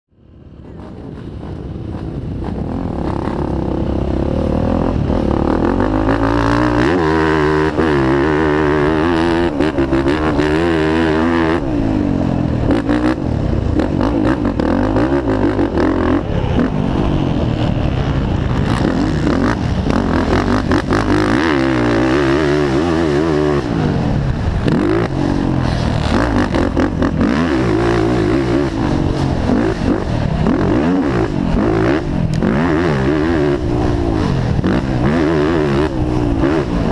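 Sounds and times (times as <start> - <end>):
quad engine revving hard: 2.4 - 36.9.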